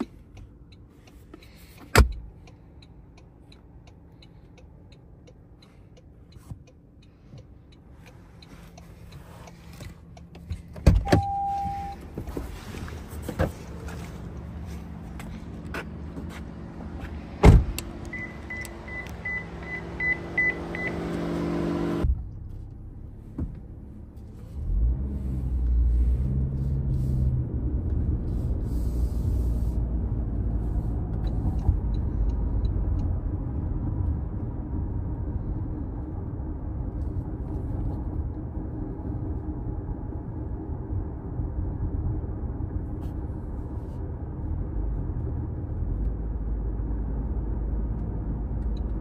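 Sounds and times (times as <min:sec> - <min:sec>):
road and tyre noise: 0:00.0 - 0:49.0
short beeps: 0:11.0 - 0:12.1, 0:18.1 - 0:21.0
sharp thump: 0:17.4 - 0:17.8.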